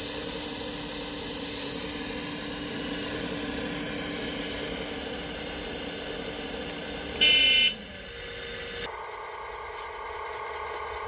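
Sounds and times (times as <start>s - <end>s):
electric motors whining: 0.0s - 11.0s
electronic beep: 7.2s - 7.8s.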